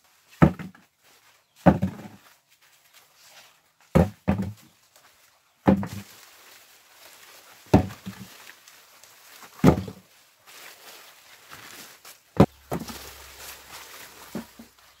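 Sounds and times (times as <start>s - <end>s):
vines rustling: 0.0s - 15.0s
cucumbers thudding into plastic bucket: 1.6s - 2.2s, 3.9s - 4.7s, 5.6s - 6.1s, 7.7s - 8.3s, 9.6s - 10.0s, 12.4s - 13.1s, 14.3s - 14.7s.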